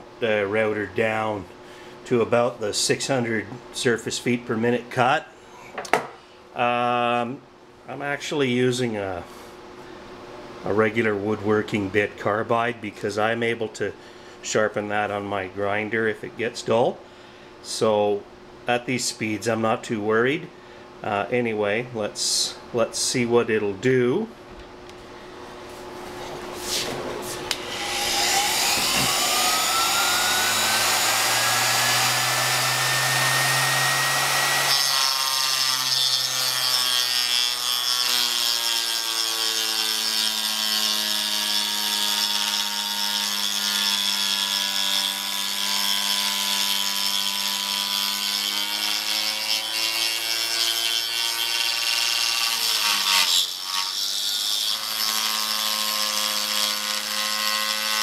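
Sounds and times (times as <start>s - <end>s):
router whining: 27.4s - 58.0s
router bit milling metal: 27.6s - 58.0s.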